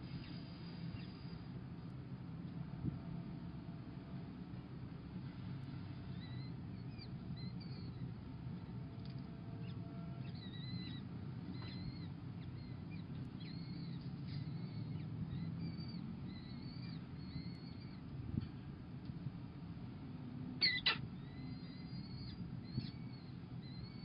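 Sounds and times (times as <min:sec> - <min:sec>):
steady low hum: 0:00.0 - 0:24.0
falcon chicks begging calls: 0:20.6 - 0:24.0.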